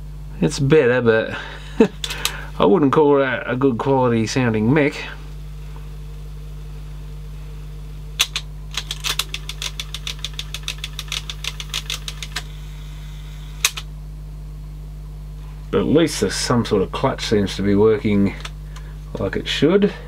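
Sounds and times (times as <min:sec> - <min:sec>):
steady low hum: 0:00.0 - 0:20.0
cassette mechanism clicks: 0:08.2 - 0:12.5, 0:13.6 - 0:13.9.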